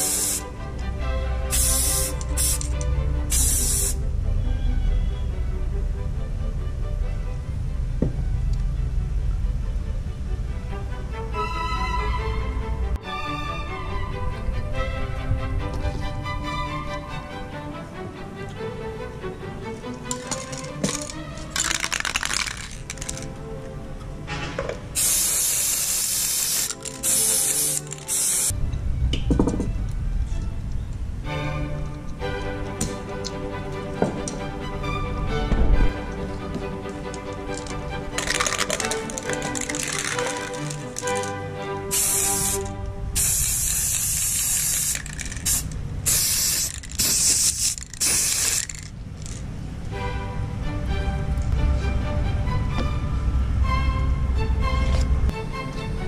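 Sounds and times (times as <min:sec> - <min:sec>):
aerosol spray can hissing: 0:00.0 - 0:00.4, 0:01.5 - 0:04.0, 0:25.0 - 0:28.5, 0:38.2 - 0:41.3, 0:41.9 - 0:49.4.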